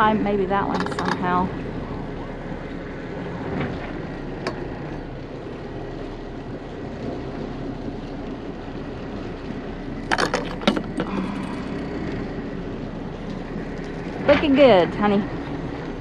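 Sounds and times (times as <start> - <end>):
boat engines running: 0.0 - 16.0
sharp knocks and clatter: 10.1 - 11.2.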